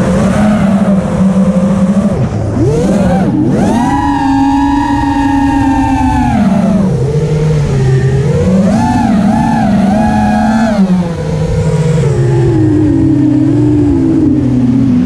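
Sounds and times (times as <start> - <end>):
quadcopter motors whining: 0.0 - 15.0.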